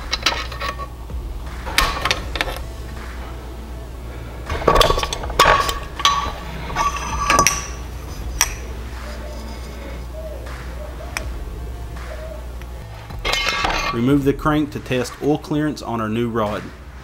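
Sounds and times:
metal engine parts clinking: 0.0 - 1.0, 1.7 - 2.8, 4.5 - 10.1, 13.1 - 14.1.

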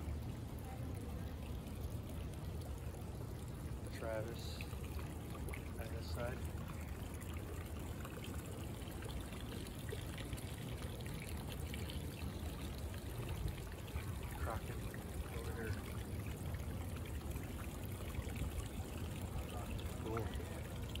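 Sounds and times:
water trickling in canal: 0.0 - 21.0.

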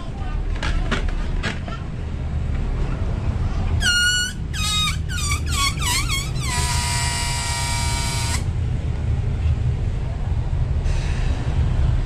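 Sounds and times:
air squealing from balloon neck: 3.8 - 8.5.

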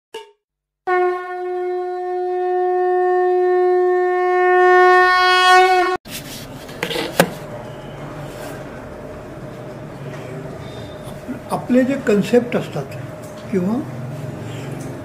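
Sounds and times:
long horn note: 0.2 - 6.0.

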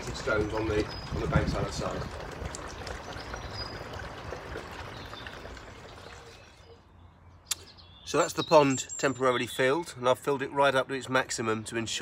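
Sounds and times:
water pouring into pond: 0.0 - 6.9.

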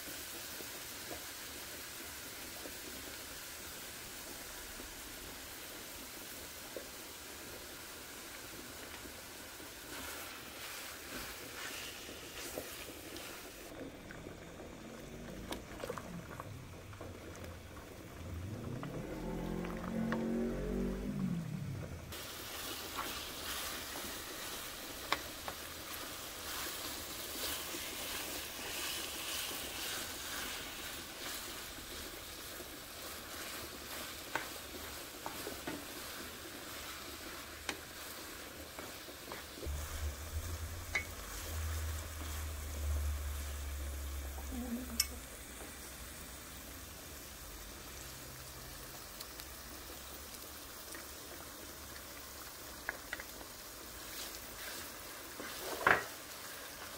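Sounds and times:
meat and onion sizzling in a skillet: 0.0 - 21.4, 22.1 - 56.9
low rumble: 14.0 - 22.2, 39.6 - 45.0.

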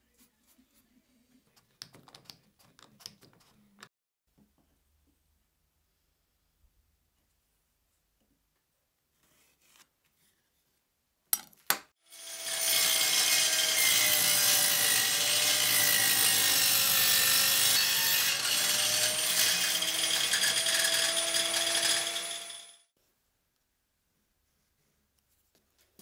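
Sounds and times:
table saw cutting wood: 12.0 - 22.9.

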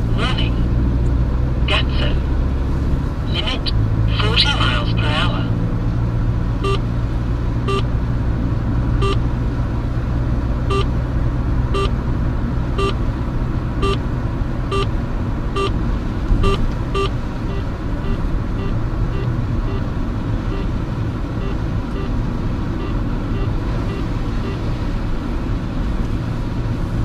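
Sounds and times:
car engine and road noise: 0.0 - 27.0
short two-tone beeps: 6.6 - 6.8, 7.7 - 7.9, 9.0 - 9.2, 10.7 - 10.9, 11.7 - 12.0, 12.8 - 13.0, 13.8 - 14.0, 14.7 - 14.9, 15.6 - 15.8, 16.4 - 19.9, 20.5 - 20.8, 21.4 - 22.1.

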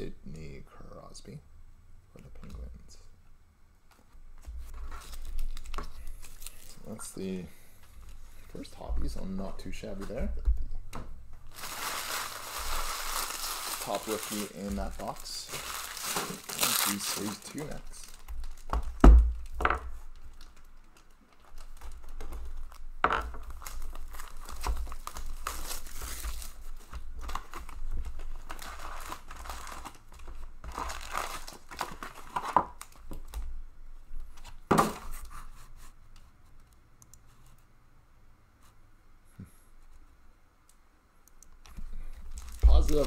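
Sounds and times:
plastic wrap crinkling: 4.6 - 10.1, 11.4 - 33.5, 41.6 - 43.0
foil card packs rustling: 4.7 - 10.3, 11.4 - 22.8, 23.4 - 33.4, 41.9 - 43.0.

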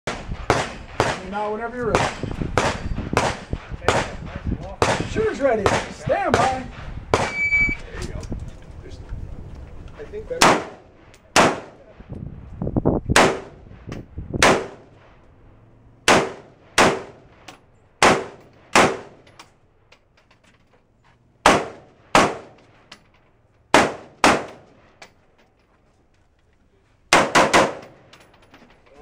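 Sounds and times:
rifle shots: 0.1 - 7.6, 10.4 - 11.8, 13.2 - 13.6, 14.4 - 15.0, 16.0 - 19.2, 21.4 - 22.6, 23.7 - 24.8, 27.1 - 28.0.

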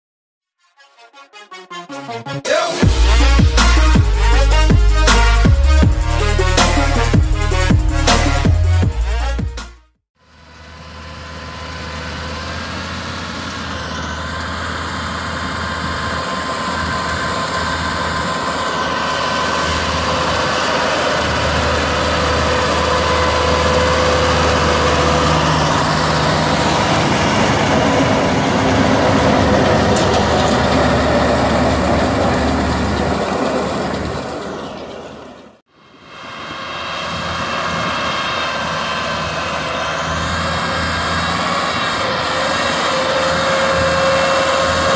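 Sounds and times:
tractor diesel engine under load: 10.2 - 44.9.

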